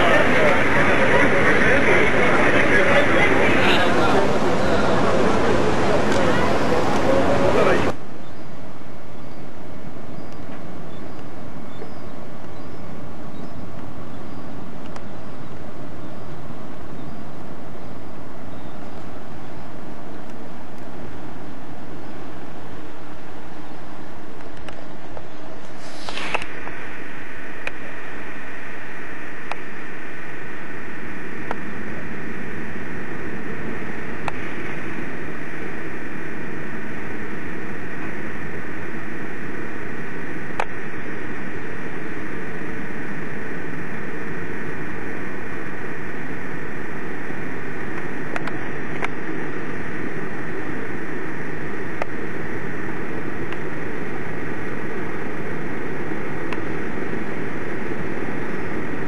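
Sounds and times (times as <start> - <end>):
ship engine hum: 0.0 - 59.0
wind: 0.0 - 59.0
faint clicks: 14.8 - 15.1, 47.9 - 49.2, 53.4 - 53.7.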